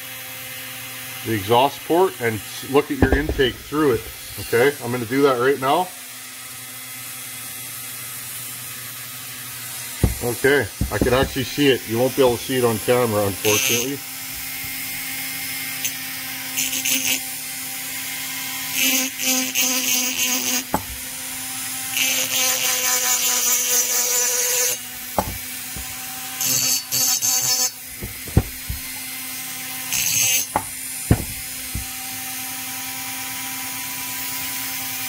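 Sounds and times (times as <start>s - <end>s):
light knocks: 3.0s - 4.3s, 10.0s - 11.4s, 25.2s - 26.0s, 28.0s - 29.0s, 30.5s - 32.0s
rotary tool grinding metal: 9.3s - 17.4s, 18.0s - 34.5s
rotary tool humming: 9.8s - 12.6s, 20.2s - 21.3s, 24.6s - 32.4s.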